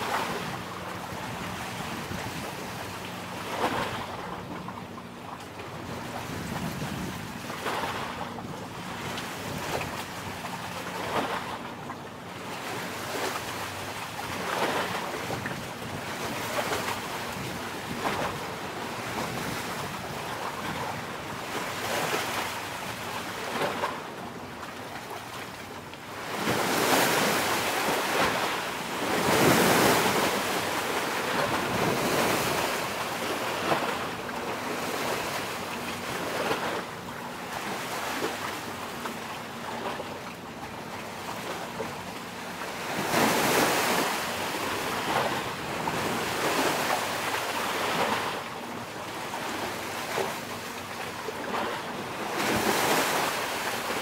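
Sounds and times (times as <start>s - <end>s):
small waves washing onto shore: 0.0s - 5.2s, 5.9s - 54.0s
wind noise on microphone: 5.9s - 8.6s.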